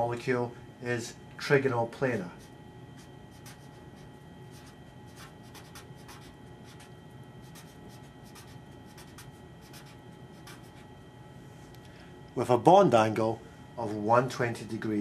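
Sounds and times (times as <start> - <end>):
marker scratching on paper: 2.4 - 10.9.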